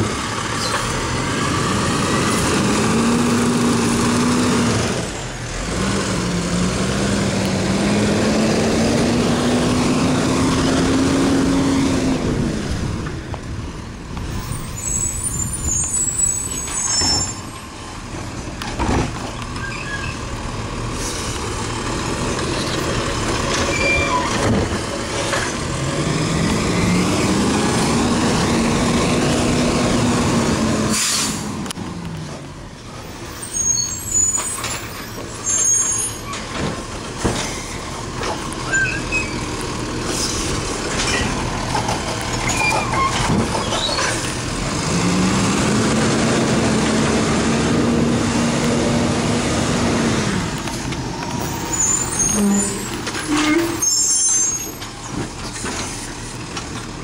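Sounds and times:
air-brake hiss: 0:30.9 - 0:31.5
clunks: 0:40.2 - 0:44.4.

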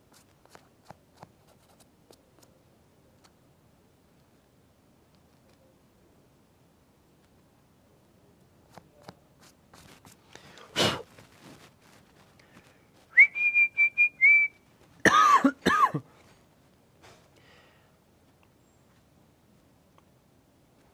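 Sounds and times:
man coughing: 0:10.7 - 0:11.1, 0:15.0 - 0:16.2
man whistling: 0:13.1 - 0:14.6.

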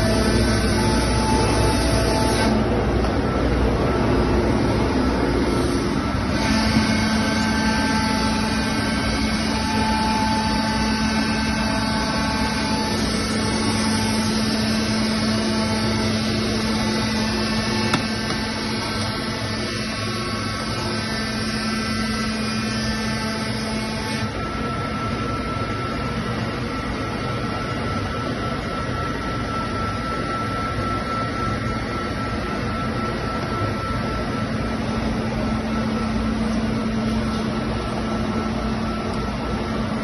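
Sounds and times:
router machine running: 0:00.0 - 0:25.6
high steady whine: 0:00.0 - 0:40.0.

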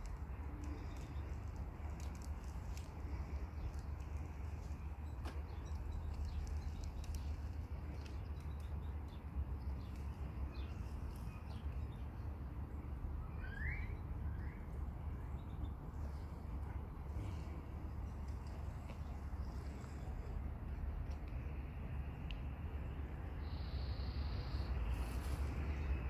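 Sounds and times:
bird chirp: 0:13.2 - 0:16.3, 0:23.4 - 0:26.0.

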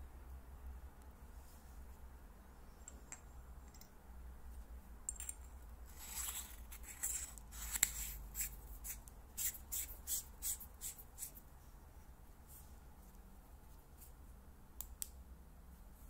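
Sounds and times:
threads scraping: 0:05.1 - 0:11.4.

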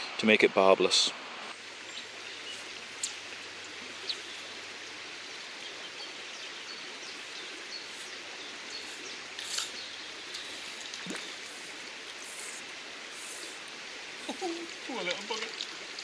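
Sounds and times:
river water flowing: 0:00.0 - 0:16.0
faint sharp clicks: 0:03.0 - 0:03.2.

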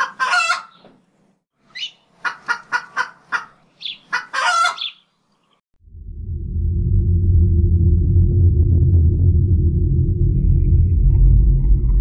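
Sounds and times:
rooster clucking: 0:00.0 - 0:00.8, 0:01.8 - 0:05.0
rooster calling: 0:04.2 - 0:05.0.

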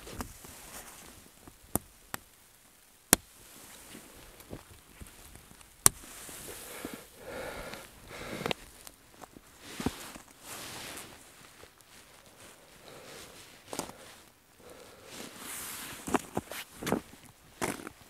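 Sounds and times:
tent fabric handling: 0:00.0 - 0:01.4, 0:03.4 - 0:18.0.

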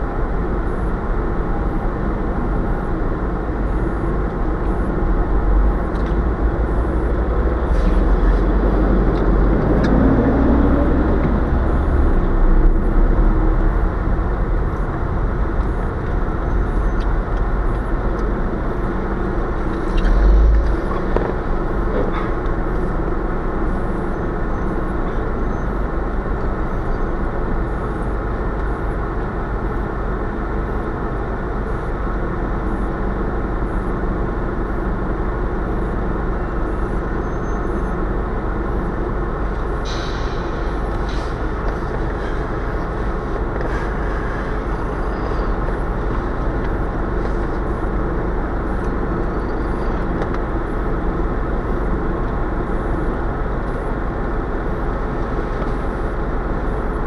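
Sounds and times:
car engine and road noise: 0:00.0 - 0:57.0.

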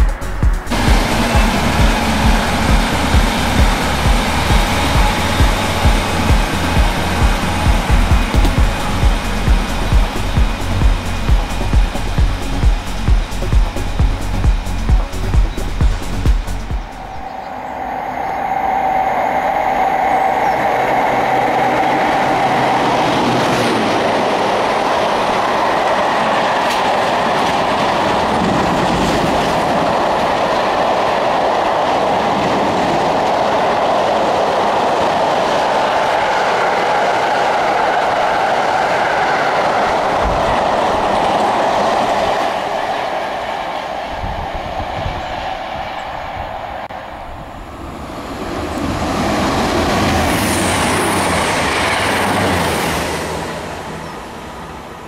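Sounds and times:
clickety-clack over rail joints: 0:00.0 - 0:17.1, 0:22.9 - 0:45.8
freight train wheels rumbling: 0:00.0 - 0:55.0
passenger train whine: 0:00.0 - 0:55.0.

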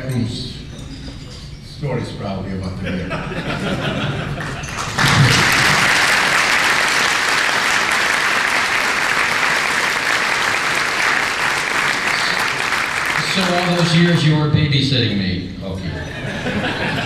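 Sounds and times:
audience applauding: 0:04.2 - 0:14.3.

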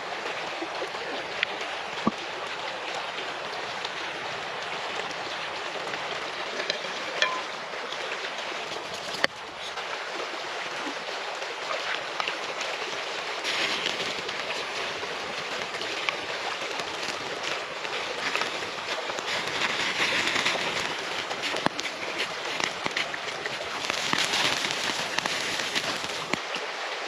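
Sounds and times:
stream rushing: 0:00.0 - 0:27.0
clicks and knocks of food handling: 0:18.2 - 0:26.4.

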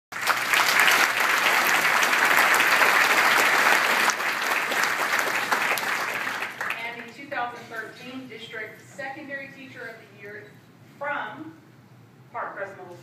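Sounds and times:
crowd applauding: 0:00.1 - 0:06.8.

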